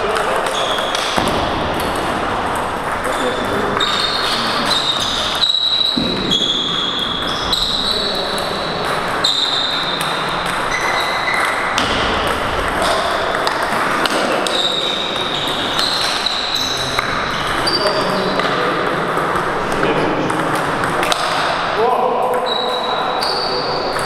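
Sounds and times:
table tennis balls clicking: 0.0s - 21.6s.

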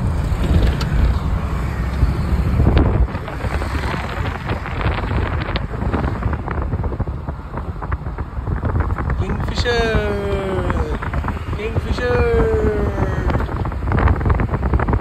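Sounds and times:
road traffic rumble: 0.0s - 15.0s
wind buffeting microphone: 0.0s - 15.0s.

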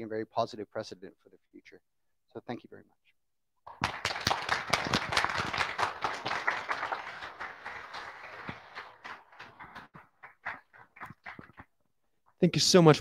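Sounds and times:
audience applauding: 3.7s - 11.8s.

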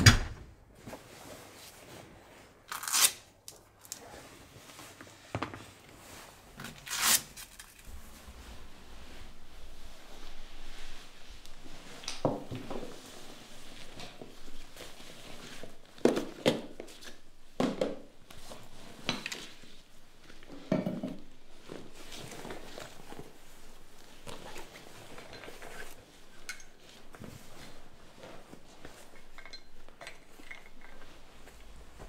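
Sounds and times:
fabric bag rustling: 7.7s - 12.0s, 21.3s - 29.4s.

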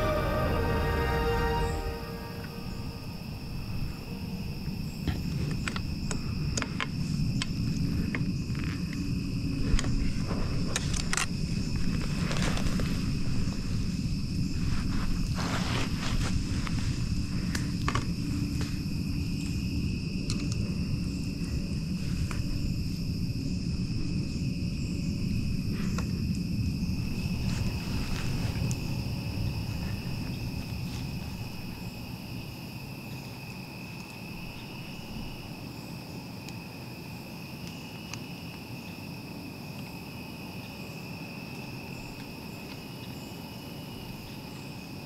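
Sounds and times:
low rumbling noise: 0.0s - 6.4s
insects trilling: 0.0s - 45.0s.

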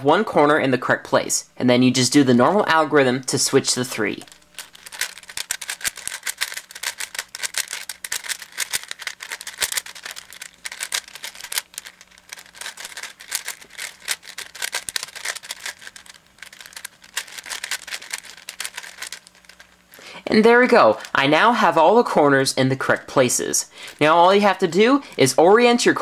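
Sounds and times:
puzzle cube layers clicking: 4.4s - 19.7s.

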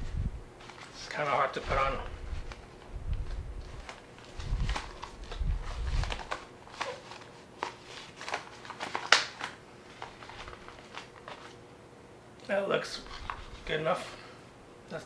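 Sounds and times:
fabric rustling and crinkling: 0.6s - 11.6s.

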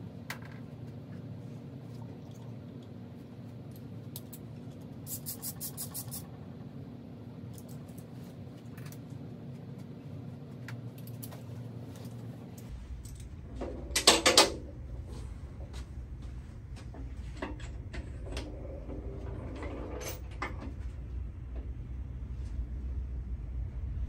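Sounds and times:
steady shop hum: 0.0s - 24.0s
ratchet clicks: 5.1s - 6.2s.

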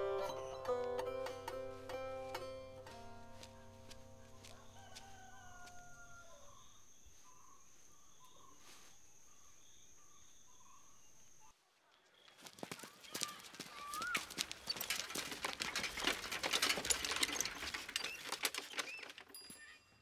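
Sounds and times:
plucked string music: 0.0s - 4.5s
bird chirps: 0.0s - 11.5s
rooster crowing: 4.0s - 6.8s
high insect whine: 4.3s - 11.5s.

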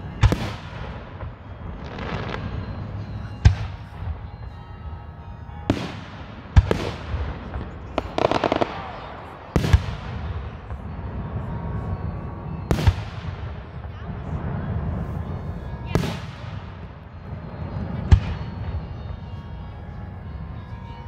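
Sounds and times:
firework bangs: 0.1s - 4.2s, 5.7s - 11.6s, 12.7s - 15.0s.

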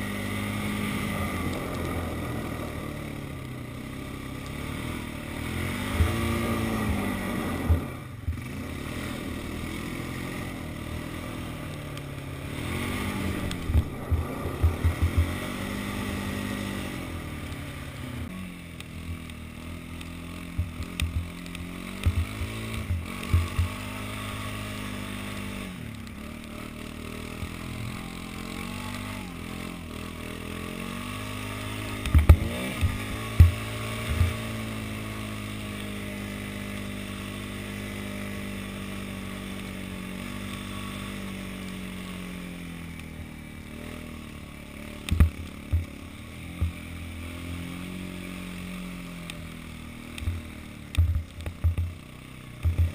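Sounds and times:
atv engine revving: 0.0s - 52.9s
sharp knocks: 22.0s - 23.8s.

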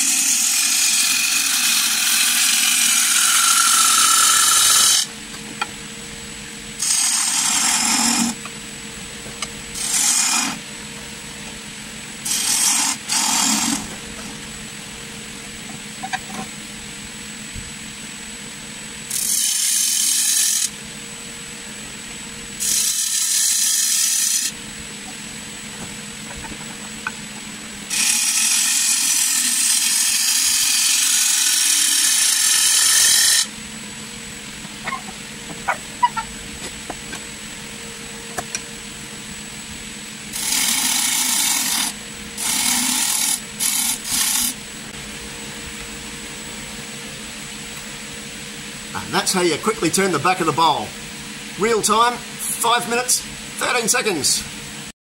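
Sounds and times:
gouge shaving hiss on wood: 0.0s - 5.1s, 6.8s - 8.4s, 9.8s - 10.6s, 12.2s - 13.9s, 19.1s - 20.7s, 22.6s - 24.6s, 27.9s - 33.5s, 40.3s - 44.6s
lathe faint steady whine: 0.0s - 54.9s.

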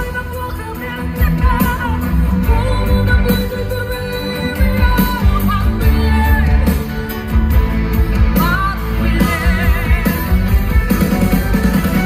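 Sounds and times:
woman singing into microphone: 0.0s - 6.9s, 8.2s - 10.7s
live pop-rock band playing: 0.0s - 12.0s.

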